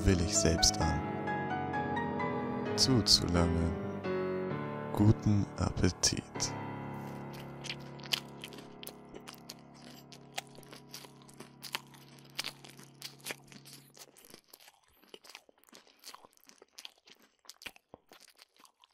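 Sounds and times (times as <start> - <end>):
wet chewing and crunching: 7.0 - 18.9.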